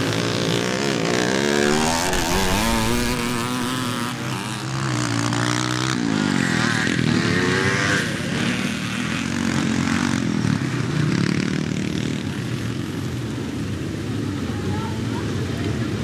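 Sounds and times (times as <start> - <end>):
motorcycle engine revving: 0.0 - 12.1.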